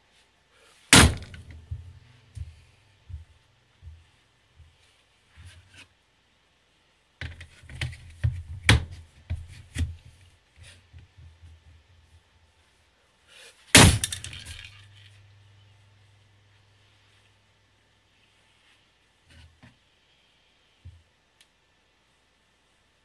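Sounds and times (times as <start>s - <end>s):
knocks and clatters of handling: 13.9s - 15.2s.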